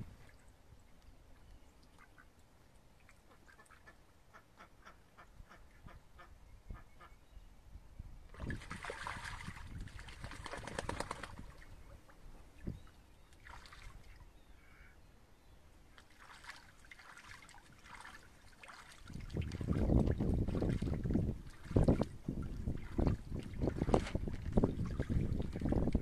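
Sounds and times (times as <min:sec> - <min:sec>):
ducks splashing in water: 0:03.0 - 0:05.6, 0:08.3 - 0:12.7, 0:13.3 - 0:14.9, 0:15.9 - 0:26.0.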